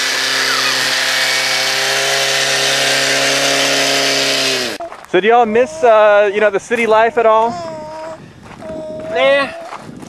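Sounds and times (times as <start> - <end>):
tractor engine running: 0.0 - 4.8.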